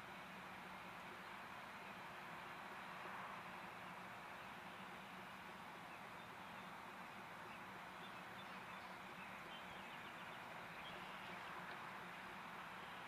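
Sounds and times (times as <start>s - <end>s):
outdoor background hiss: 0.0s - 13.0s
faint bird chirps: 3.8s - 13.0s.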